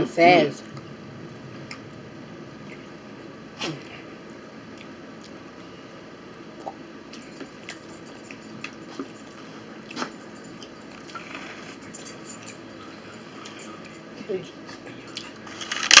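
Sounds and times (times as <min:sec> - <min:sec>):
person chewing spaghetti: 0:06.6 - 0:15.5.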